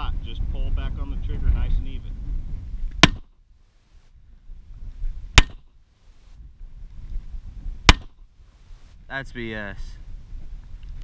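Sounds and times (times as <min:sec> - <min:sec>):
pistol shots: 0:03.0 - 0:03.4, 0:05.4 - 0:05.7.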